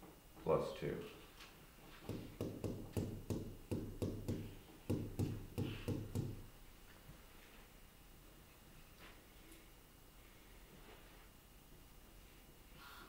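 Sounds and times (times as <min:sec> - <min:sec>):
stylus tapping on glass screen: 0:02.1 - 0:06.5.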